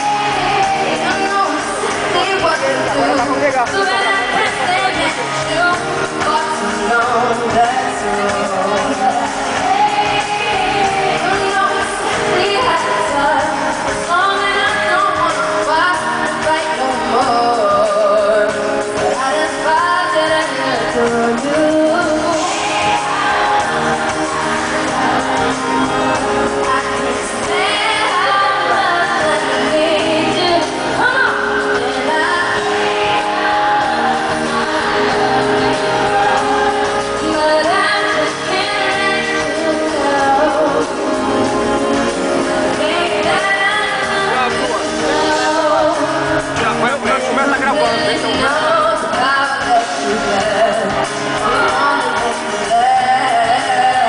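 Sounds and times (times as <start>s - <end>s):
live pop band playing: 0.0s - 54.0s
woman singing: 0.0s - 54.0s.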